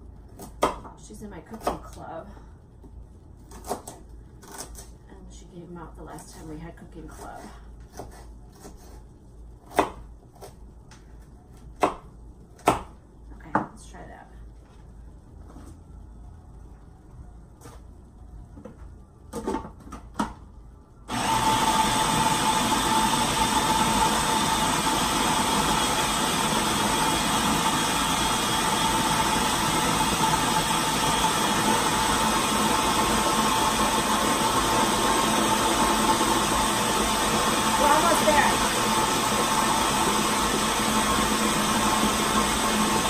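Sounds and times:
food processor motor whining: 21.1s - 43.0s.

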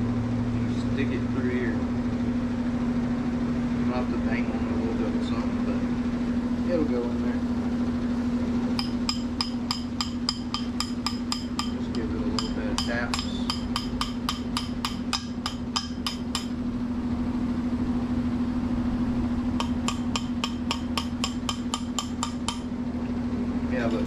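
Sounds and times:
steady low hum: 0.0s - 24.0s
hammer tapping metal: 8.7s - 16.6s, 19.6s - 22.8s.

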